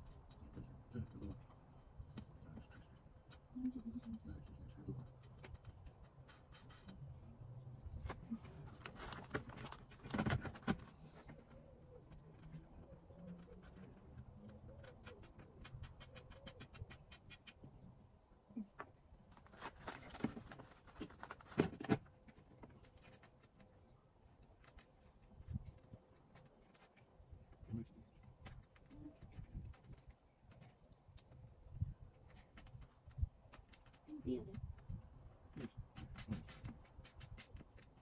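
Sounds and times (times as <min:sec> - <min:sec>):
plastic panels clicking and knocking: 0:09.2 - 0:11.5, 0:35.5 - 0:38.0.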